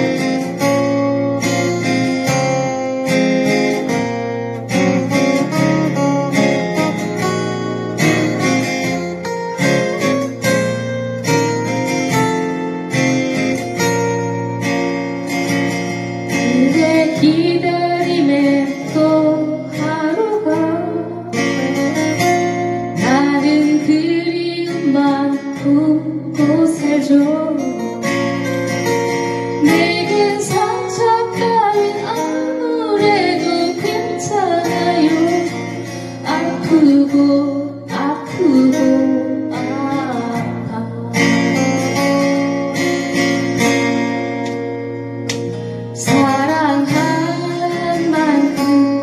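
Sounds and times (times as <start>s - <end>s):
acoustic guitars strummed: 0.0s - 49.0s
woman singing ballad: 16.3s - 28.4s, 29.3s - 42.6s, 45.8s - 49.0s.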